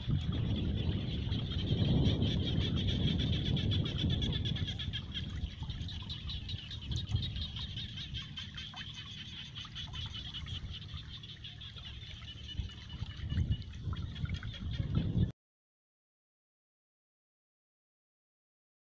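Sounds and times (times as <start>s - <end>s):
high-pitched pulsing wildlife chorus: 0.0s - 15.3s.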